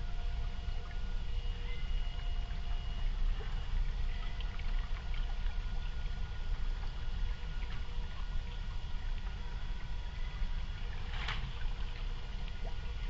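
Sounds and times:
faint thin tones: 0:00.0 - 0:13.0.

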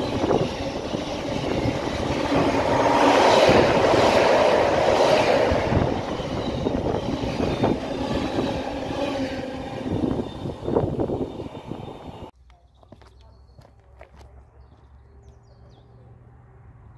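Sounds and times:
train wheels rattling over track: 0:00.0 - 0:12.3.

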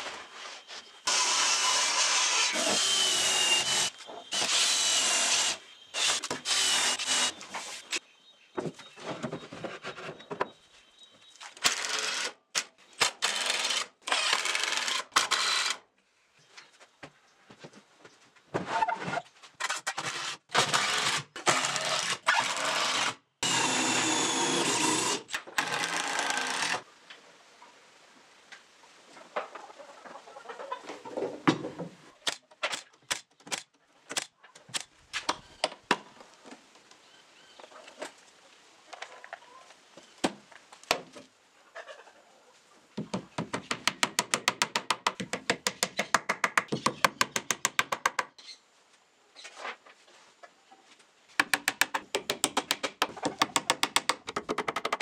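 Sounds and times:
cordless drill driving screws: 0:01.1 - 0:07.4, 0:13.2 - 0:15.8, 0:20.1 - 0:26.8
sharp knocks and clicks: 0:43.0 - 0:48.3, 0:51.4 - 0:55.0.

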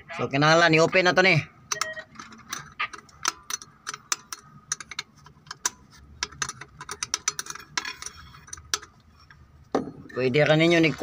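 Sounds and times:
ratcheting wrench clicking: 0:01.7 - 0:09.4.

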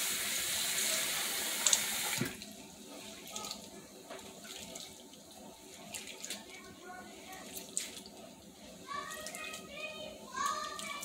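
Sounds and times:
faucet running into bowl: 0:00.0 - 0:02.5.

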